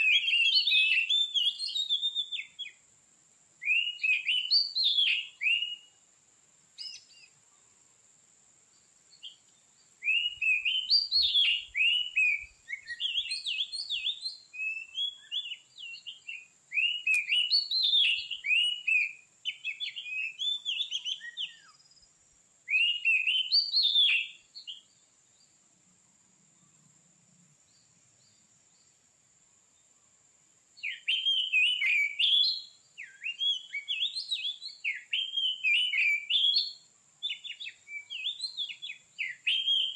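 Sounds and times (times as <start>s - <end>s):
bird singing whistled phrases: 0.0s - 2.8s, 3.6s - 6.0s, 6.8s - 7.4s, 10.0s - 22.0s, 22.7s - 24.9s, 30.8s - 39.9s.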